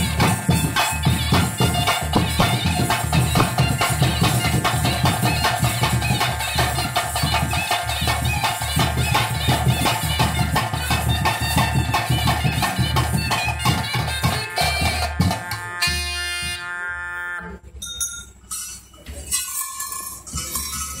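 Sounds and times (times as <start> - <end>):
fast drumming: 0.0 - 16.1
wind instrument: 0.0 - 17.6.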